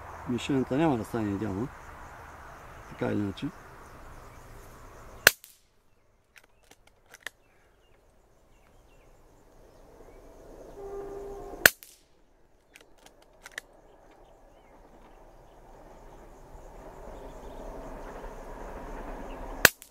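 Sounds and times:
light clicks: 12.6 - 14.2.

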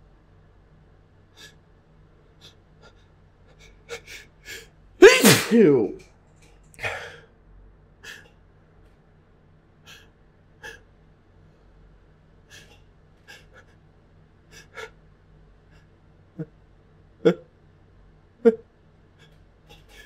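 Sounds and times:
person gasping: 5.0 - 6.0, 6.8 - 7.2.

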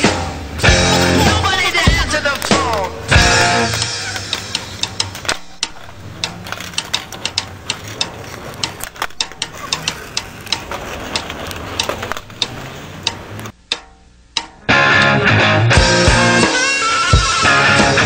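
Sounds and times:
skateboards clattering on stone: 0.6 - 13.6.

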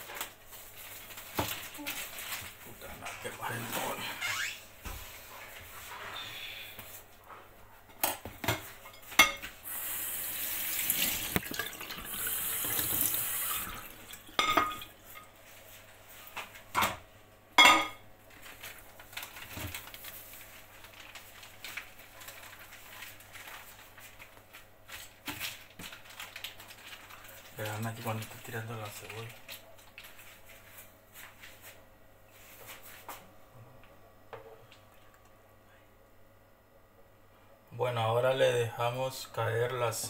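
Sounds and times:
kitchen tap running: 9.6 - 15.0
dishes and utensils clattering: 14.1 - 15.3, 17.6 - 18.0.

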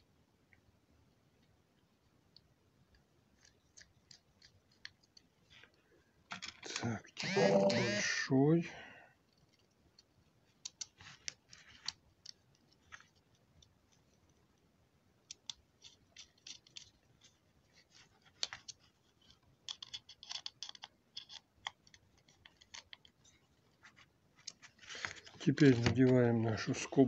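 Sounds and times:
screwdriver clicking and scraping: 19.7 - 23.0.

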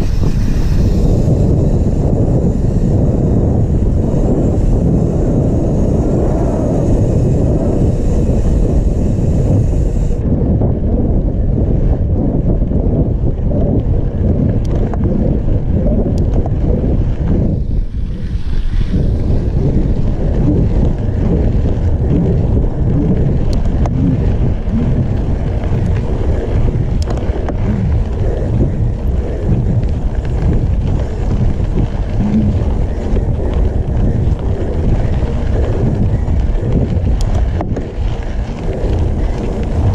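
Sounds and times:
bike rolling on dirt road: 0.0 - 39.9
wind buffeting microphone: 0.0 - 39.9
faint clicks: 25.1 - 39.9.

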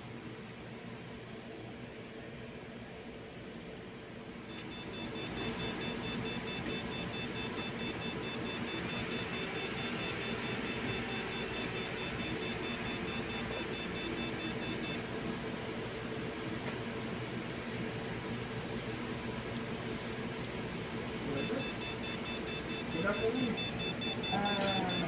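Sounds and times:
fan hum: 0.0 - 25.0
rapid high-pitched beeps: 4.5 - 15.0, 21.4 - 25.0.

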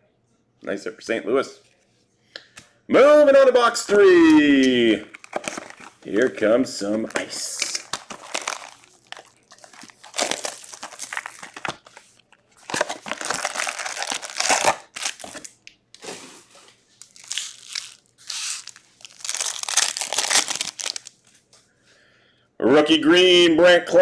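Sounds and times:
foil packs crinkling: 4.2 - 15.6, 17.0 - 21.1.

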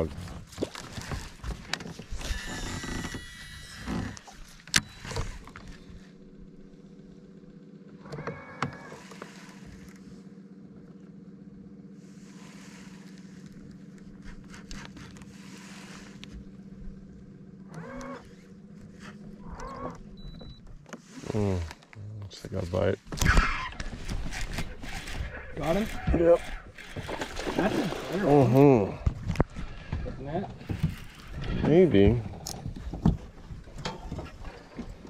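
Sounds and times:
electric motor humming: 2.0 - 7.4, 23.8 - 28.8, 30.6 - 32.6.

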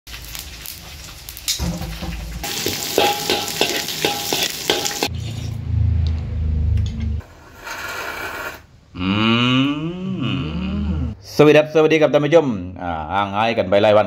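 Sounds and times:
stir-frying sizzle: 0.1 - 5.4
metal spatula scraping wok: 2.4 - 5.7, 7.2 - 8.7.

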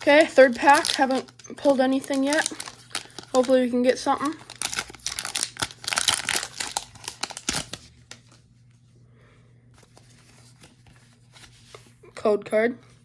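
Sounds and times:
foil wrapper crinkling and tearing: 0.0 - 8.4
cards rustling: 0.0 - 8.5, 9.8 - 12.0.

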